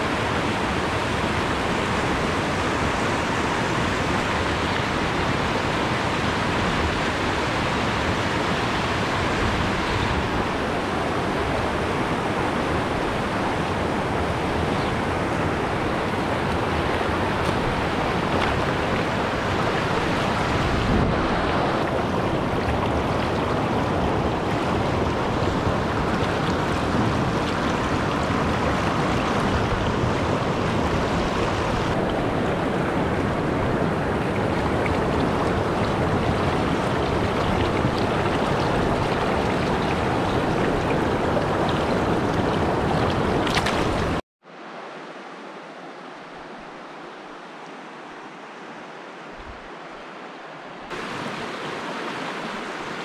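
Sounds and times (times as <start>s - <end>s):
stream rushing over rocks: 0.0s - 53.0s.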